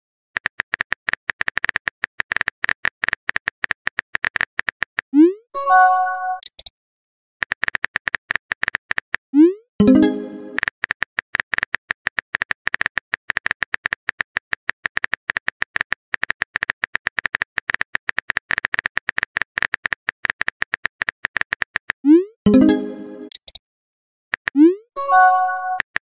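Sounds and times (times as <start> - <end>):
on-screen keyboard typing clicks: 0.4 - 5.4, 6.3 - 6.7, 7.4 - 23.6, 24.3 - 26.0
notification tone: 5.2 - 6.4, 9.4 - 10.6, 22.1 - 23.4, 24.6 - 25.8.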